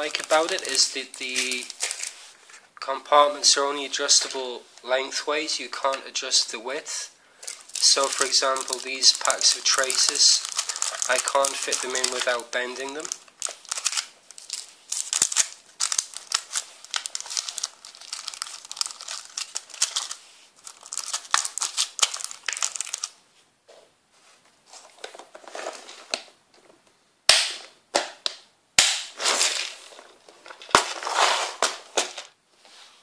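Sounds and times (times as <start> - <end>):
plastic packaging crinkling: 0.0 - 2.4, 7.4 - 23.2, 29.2 - 32.4
plastic box rattling: 7.4 - 20.1.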